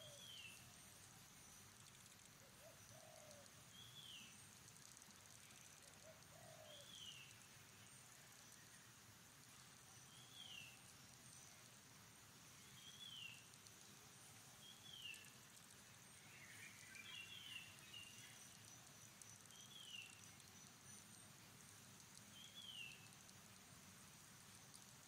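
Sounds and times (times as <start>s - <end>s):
faint high background hiss: 0.0s - 25.0s.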